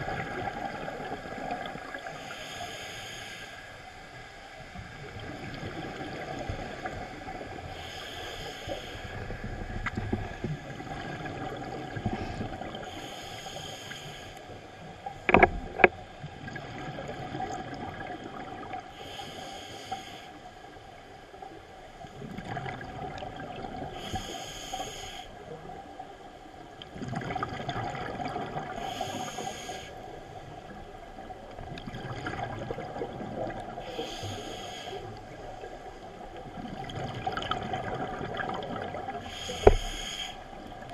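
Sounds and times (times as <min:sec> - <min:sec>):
rumbling exhaled bubbles: 0:00.0 - 0:02.0, 0:26.9 - 0:28.8, 0:31.6 - 0:33.8, 0:36.3 - 0:40.0
regulator breathing hiss: 0:02.1 - 0:03.8, 0:07.7 - 0:09.5, 0:12.3 - 0:14.6, 0:18.9 - 0:20.5, 0:23.9 - 0:25.4, 0:28.8 - 0:30.1, 0:33.8 - 0:35.2, 0:39.2 - 0:40.5.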